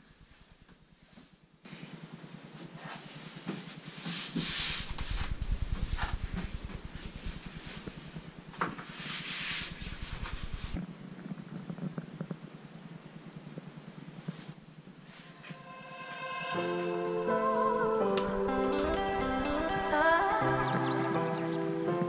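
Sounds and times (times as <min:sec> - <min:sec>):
scratchy rustles: 0:00.0 - 0:10.8
low hum: 0:04.6 - 0:11.0, 0:14.6 - 0:21.6
board rubbing and scraping: 0:08.8 - 0:10.8.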